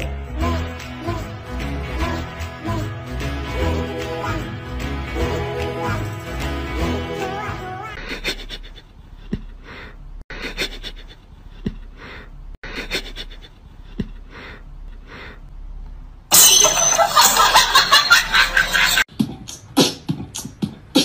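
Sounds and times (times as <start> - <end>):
loud music: 0.0 - 7.8.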